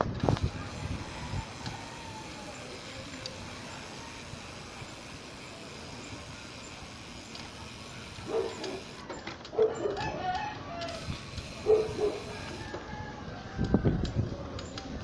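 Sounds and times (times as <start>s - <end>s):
wind and road noise: 0.0s - 15.0s
rooster crowing: 0.8s - 2.7s, 9.9s - 11.1s, 11.7s - 14.0s.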